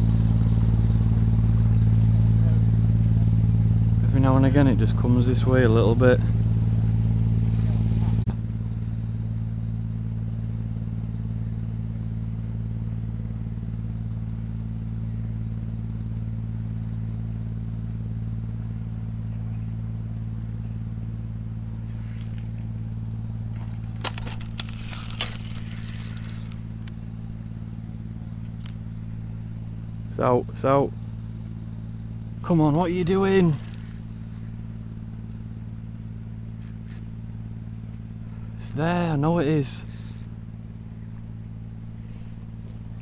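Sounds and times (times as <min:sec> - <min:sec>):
boat engine humming: 0:00.0 - 0:43.0
scratchy clicks: 0:07.3 - 0:08.3, 0:23.5 - 0:27.2, 0:36.5 - 0:37.2, 0:39.6 - 0:40.4.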